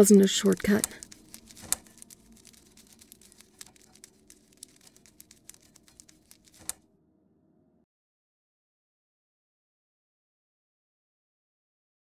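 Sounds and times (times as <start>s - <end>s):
skittering clicks and crackles: 0.4s - 6.8s.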